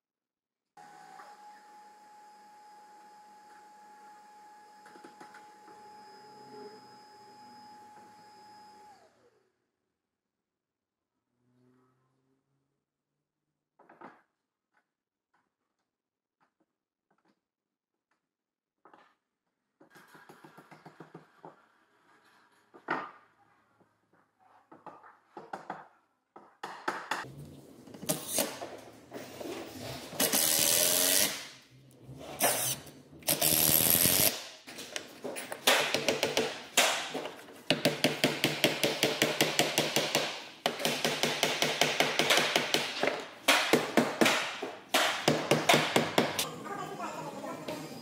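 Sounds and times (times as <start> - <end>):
power tool bursts: 30.2 - 31.5
mallet knocking wooden planks: 35.7 - 46.4.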